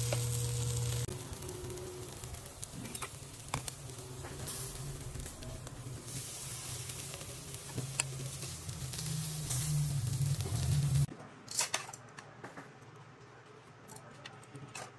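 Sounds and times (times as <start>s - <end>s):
food sizzling on a grill: 0.0s - 11.1s
low steady hum: 0.0s - 11.1s
sharp crackles: 0.0s - 11.1s.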